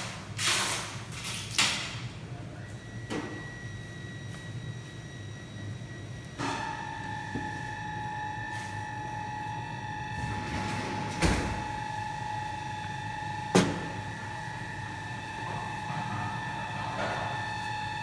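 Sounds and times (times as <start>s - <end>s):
machine whine: 2.6s - 18.0s.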